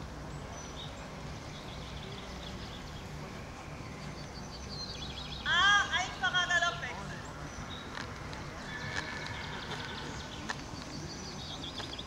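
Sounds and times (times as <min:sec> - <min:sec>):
horse whinnying: 0:08.7 - 0:10.1.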